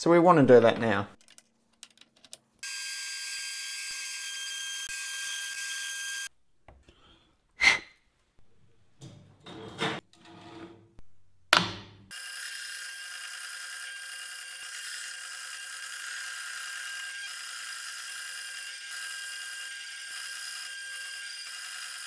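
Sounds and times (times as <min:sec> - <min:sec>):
bandsaw cutting metal: 0:12.1 - 0:22.0.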